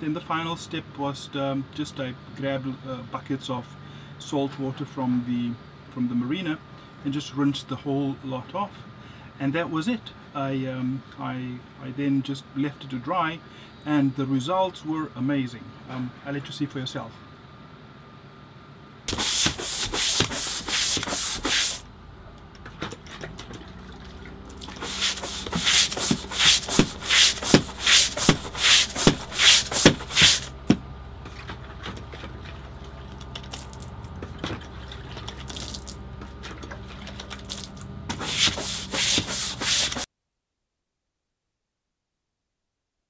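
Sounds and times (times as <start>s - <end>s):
brush scrubbing wooden deck: 19.1s - 21.8s, 24.5s - 31.4s, 37.5s - 40.1s.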